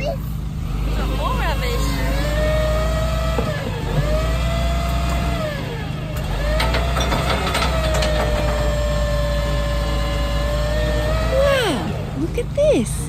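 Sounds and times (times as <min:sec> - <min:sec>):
truck engine rumble: 0:00.0 - 0:13.0
hydraulic pump whining: 0:00.3 - 0:12.8
bin clanks and rattles: 0:06.2 - 0:09.1.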